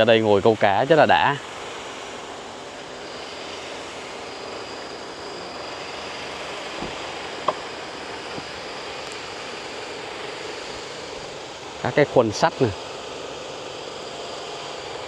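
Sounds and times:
rushing background noise: 1.6s - 13.4s.

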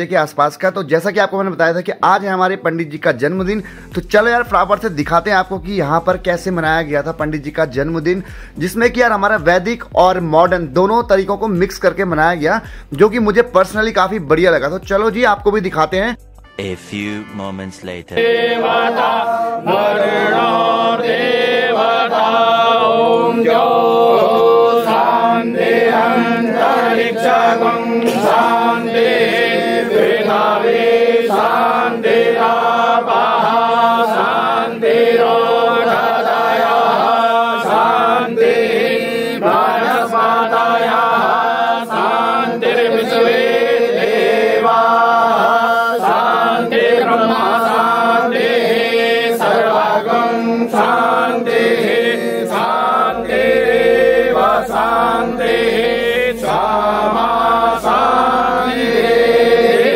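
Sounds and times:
mantras being chanted: 18.0s - 59.9s.

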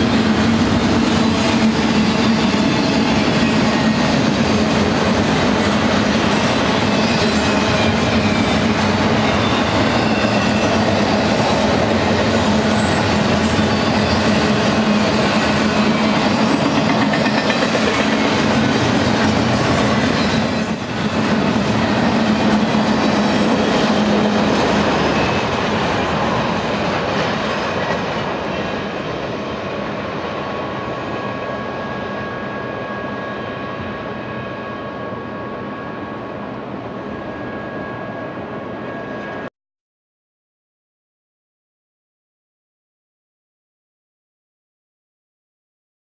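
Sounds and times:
freight train cars clattering past: 0.0s - 36.1s.

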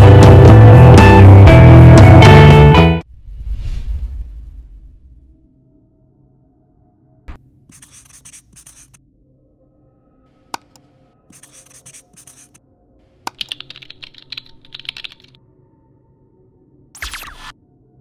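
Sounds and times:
marker scribbling on paper: 7.7s - 9.0s, 10.6s - 12.6s
computer keyboard typing: 10.6s - 12.6s, 13.3s - 15.4s.

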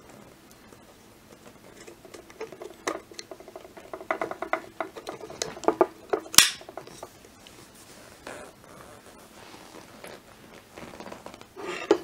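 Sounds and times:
grip snapping into place: 6.3s - 7.0s.

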